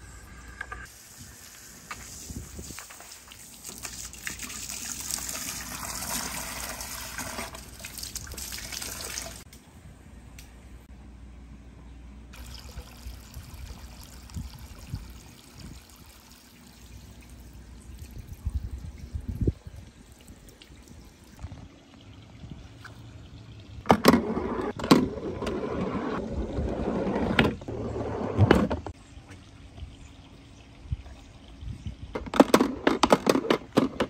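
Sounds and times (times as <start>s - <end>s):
water pouring and splashing: 0.8s - 9.5s, 12.4s - 27.9s
water trickling from a hose: 0.8s - 9.5s, 12.4s - 23.9s, 28.9s - 32.2s.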